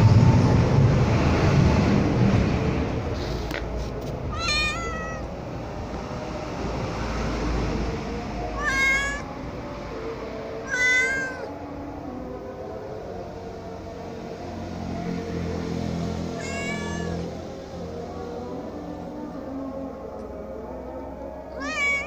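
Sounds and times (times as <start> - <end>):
cat meowing: 4.3 - 5.4, 8.6 - 9.3, 10.6 - 11.5, 16.3 - 17.4, 21.5 - 22.0.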